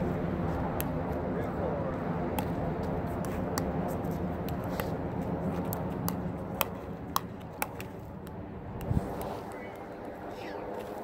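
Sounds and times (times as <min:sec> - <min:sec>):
low background rumble: 0:00.0 - 0:11.0
ball bouncing on hard court: 0:05.6 - 0:09.3
paddles striking plastic ball: 0:05.6 - 0:09.3.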